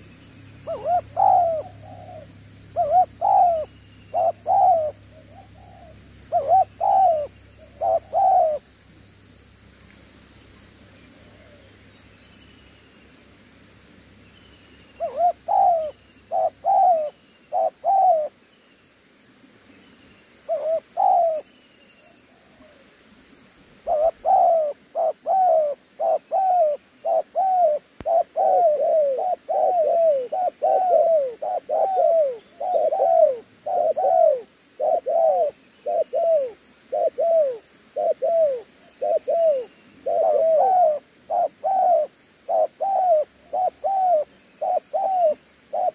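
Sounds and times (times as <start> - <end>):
dove cooing: 0.6 - 8.7, 11.1 - 11.7, 15.0 - 18.4, 20.5 - 22.8, 23.8 - 45.9.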